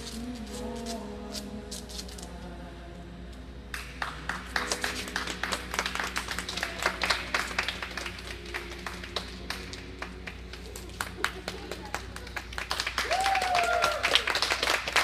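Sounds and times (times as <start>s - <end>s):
music over sound system: 0.0s - 13.0s
spectators clapping: 3.7s - 15.0s.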